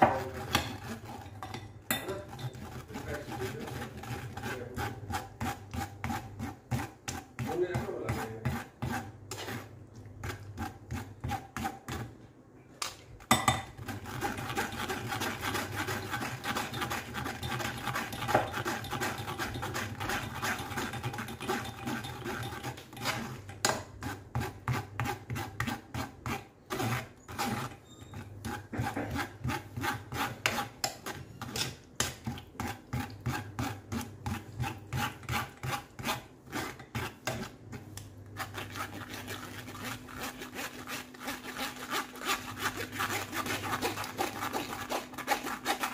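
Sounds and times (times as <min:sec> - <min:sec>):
spoon scraping wire-mesh strainer: 0:00.0 - 0:06.5, 0:13.7 - 0:31.7, 0:38.4 - 0:45.9.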